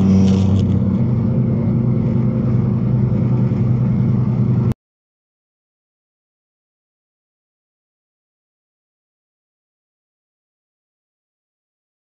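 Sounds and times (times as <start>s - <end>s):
road noise: 0.0s - 4.8s
truck diesel engine cruising: 0.0s - 4.8s.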